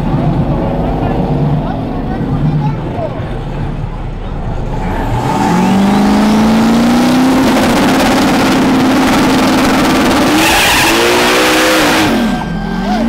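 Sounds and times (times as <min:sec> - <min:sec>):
car engine revving: 0:00.0 - 0:13.0
tires squealing: 0:04.6 - 0:13.0.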